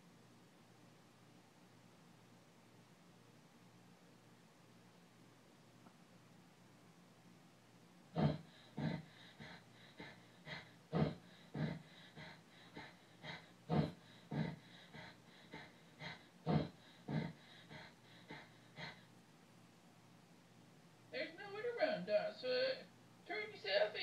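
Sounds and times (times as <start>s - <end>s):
person panting heavily: 8.2s - 19.1s.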